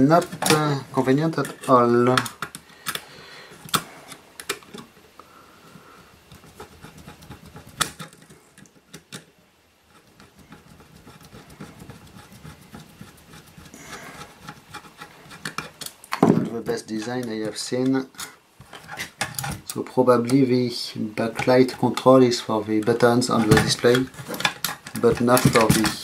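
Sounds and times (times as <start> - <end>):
screwdriver scraping metal: 21.2 - 25.9.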